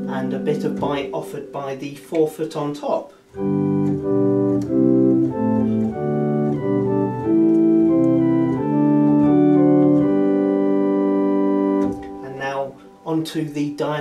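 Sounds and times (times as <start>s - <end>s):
organ playing sustained chords: 0.0s - 14.0s.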